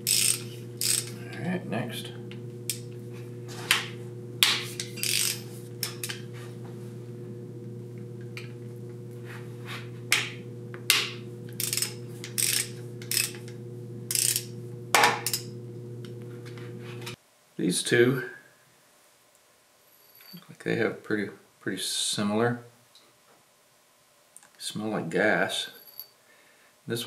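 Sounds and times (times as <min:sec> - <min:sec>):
ratchet wrench clicking: 0:00.0 - 0:01.2, 0:04.8 - 0:06.2, 0:11.6 - 0:13.5, 0:14.1 - 0:15.5
steady low hum: 0:00.0 - 0:17.2.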